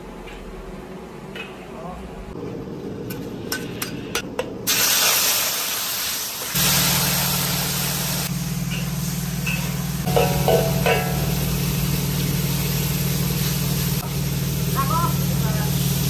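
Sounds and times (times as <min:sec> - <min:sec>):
hot oil crackling and popping: 0:04.4 - 0:14.8
loud sizzle of frying: 0:04.5 - 0:16.0
steady low hum: 0:06.6 - 0:15.7.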